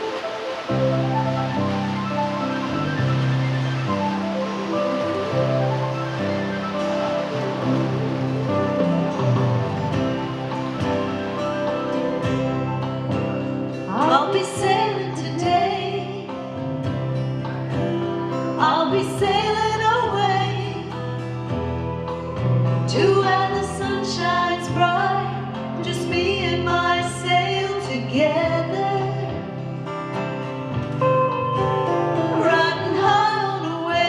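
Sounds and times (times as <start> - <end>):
acoustic guitar: 0.0 - 34.0
woman singing: 13.9 - 16.5, 17.7 - 21.1, 22.9 - 29.6, 32.0 - 34.0.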